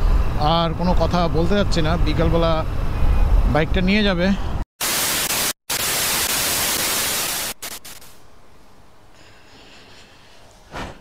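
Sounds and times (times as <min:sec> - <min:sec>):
tv static hiss: 0:04.8 - 0:08.2.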